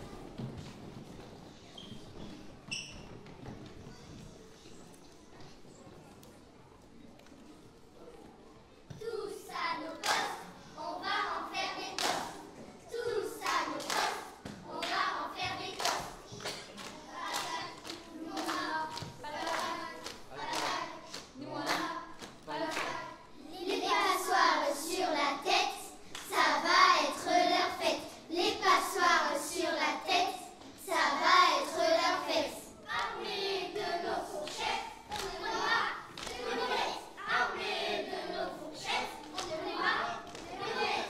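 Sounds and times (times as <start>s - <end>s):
children's choir singing: 8.9s - 41.0s
rhythmic hand clapping: 10.0s - 10.4s, 11.8s - 12.4s, 13.4s - 23.0s, 34.0s - 36.9s, 38.8s - 41.0s.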